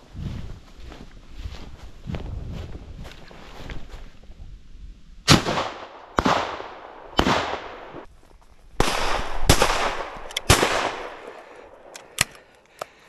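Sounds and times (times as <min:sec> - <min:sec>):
shotgun shots echoing: 0:05.3 - 0:08.1, 0:08.8 - 0:11.6.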